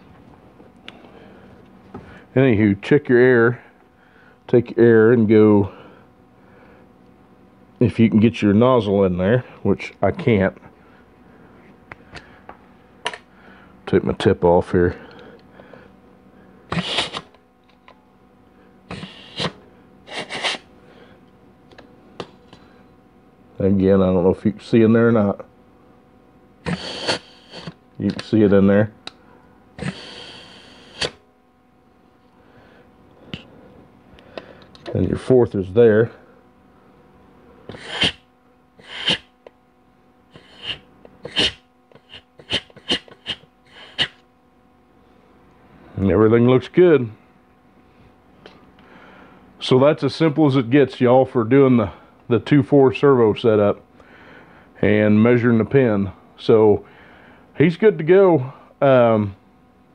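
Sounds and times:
compressed air blasts: 0:16.7 - 0:17.3, 0:18.9 - 0:20.7, 0:26.6 - 0:27.8, 0:29.8 - 0:31.2, 0:37.7 - 0:39.3, 0:40.4 - 0:44.2.

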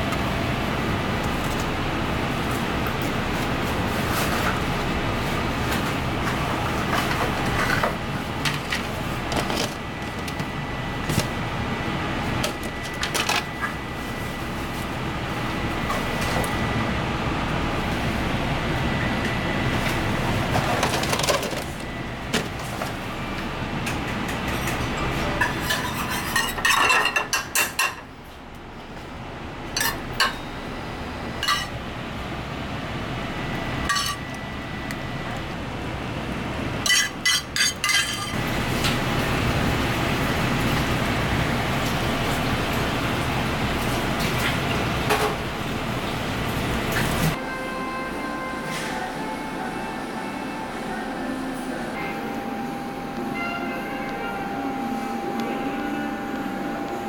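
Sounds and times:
steady background noise: 0:00.0 - 0:57.0
cutlery clinking on plate and tray: 0:36.9 - 0:38.4.

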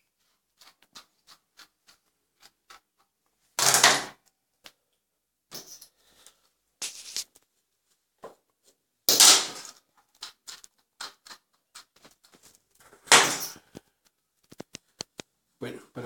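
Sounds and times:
grooming tool scraping strokes: 0:00.6 - 0:02.9.

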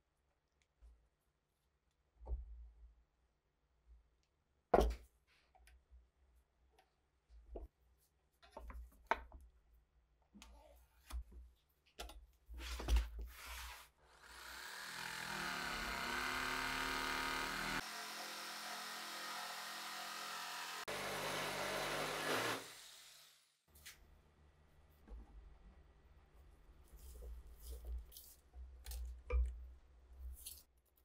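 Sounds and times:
jigsaw cutting wood: 0:14.0 - 0:23.4.

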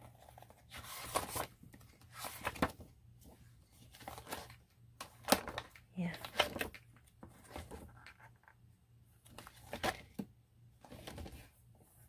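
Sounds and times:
book pages turning: 0:00.0 - 0:08.3.

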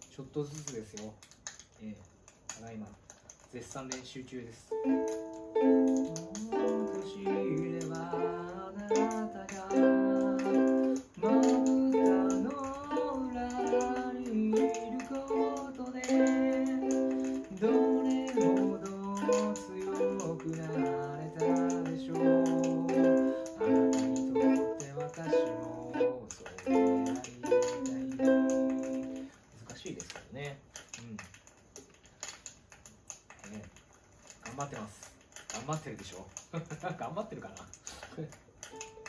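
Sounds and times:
ukulele strumming chords: 0:04.7 - 0:29.3
man singing: 0:05.8 - 0:29.2.

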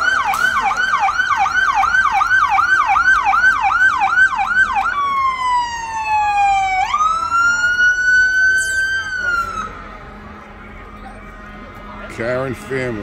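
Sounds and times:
electronic siren yelp: 0:00.0 - 0:09.8
siren wail: 0:00.0 - 0:12.1.

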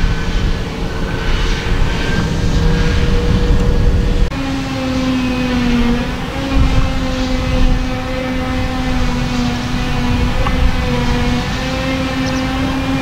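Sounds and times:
loud machine drone: 0:00.0 - 0:13.0
steady machine whine: 0:00.0 - 0:13.0.

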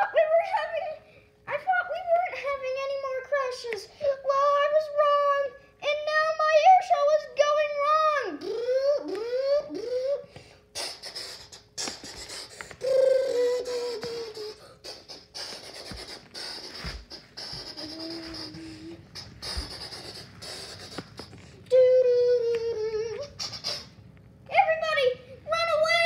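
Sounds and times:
child making jet noises: 0:00.0 - 0:26.0
hummed engine tone: 0:12.8 - 0:24.0.

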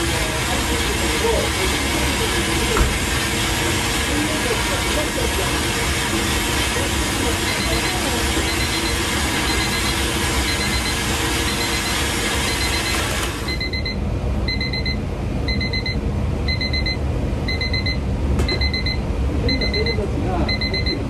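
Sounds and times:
blender running: 0:00.0 - 0:13.8
kitchen timer beeping: 0:04.4 - 0:21.0.

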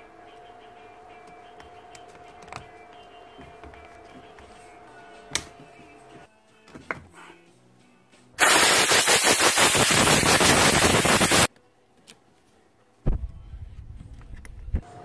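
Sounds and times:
compressed air hissing: 0:08.4 - 0:11.5.

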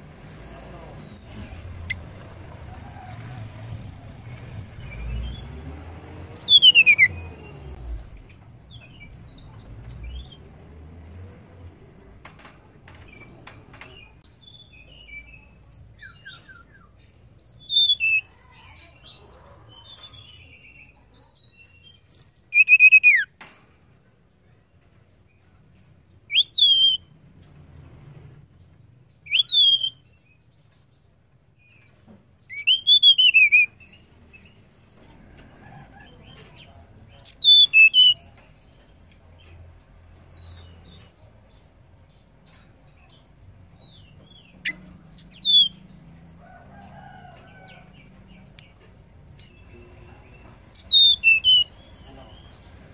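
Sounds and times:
bird twittering: 0:04.8 - 0:07.2, 0:16.0 - 0:18.3, 0:22.0 - 0:23.3, 0:26.3 - 0:27.0, 0:29.3 - 0:30.0, 0:32.5 - 0:33.8, 0:37.0 - 0:38.3, 0:44.4 - 0:45.8, 0:50.4 - 0:51.7
bird whistling call: 0:06.3 - 0:07.2, 0:22.1 - 0:23.3, 0:26.3 - 0:27.0, 0:29.3 - 0:30.0, 0:32.5 - 0:33.8, 0:37.0 - 0:38.2.

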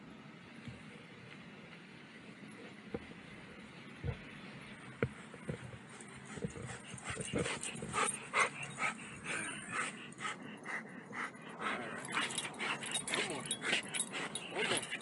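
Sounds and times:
dog panting: 0:05.1 - 0:15.0.

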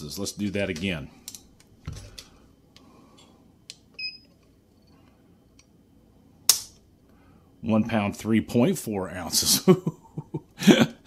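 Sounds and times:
pistol handling clicks: 0:06.5 - 0:06.8.

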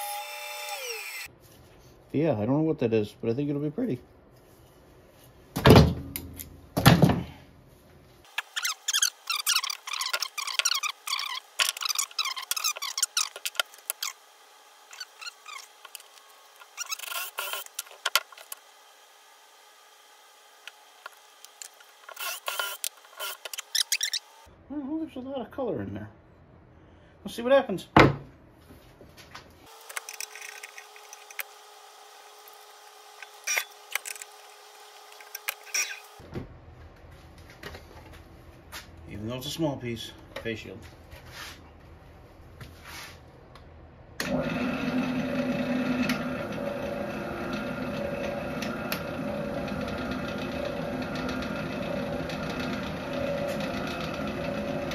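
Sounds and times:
drill chuck clicking and squeaking: 0:08.4 - 0:14.2, 0:14.9 - 0:17.9, 0:21.5 - 0:24.3, 0:33.2 - 0:34.3, 0:35.2 - 0:36.0.

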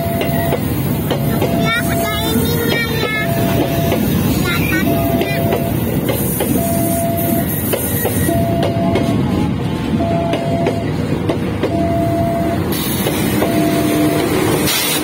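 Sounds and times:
train wheels clacking over rail joints: 0:00.0 - 0:09.2, 0:12.7 - 0:15.0
level crossing warning alarm: 0:00.0 - 0:11.0, 0:11.6 - 0:14.6
diesel locomotive: 0:00.0 - 0:15.0.

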